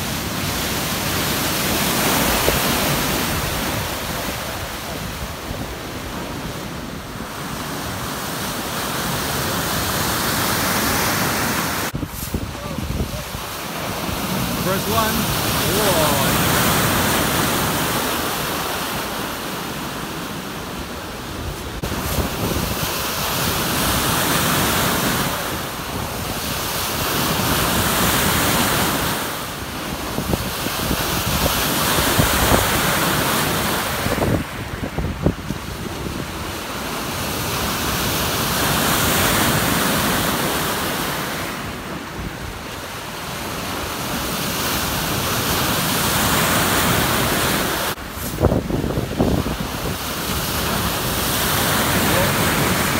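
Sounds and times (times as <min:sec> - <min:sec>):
breaking wave rushing: 0:08.6 - 0:19.7
wind buffeting microphone: 0:11.9 - 0:19.2, 0:21.2 - 0:36.6, 0:48.0 - 0:52.9.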